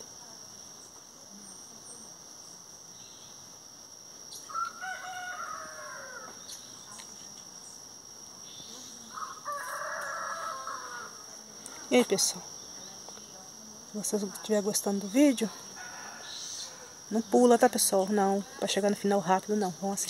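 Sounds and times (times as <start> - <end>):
high insect drone: 0.0 - 20.0
rooster crowing: 4.5 - 6.4, 9.1 - 11.2, 15.8 - 17.0.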